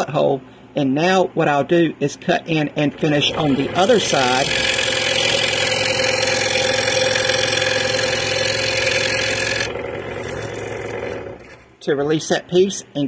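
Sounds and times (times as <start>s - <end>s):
scroll saw running: 2.8s - 11.8s.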